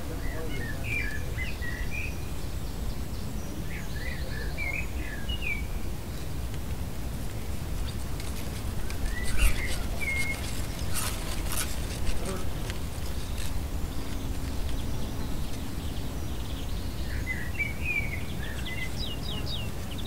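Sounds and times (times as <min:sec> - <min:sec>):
small birds chirping: 0:00.0 - 0:20.0
wind blowing: 0:00.0 - 0:20.0.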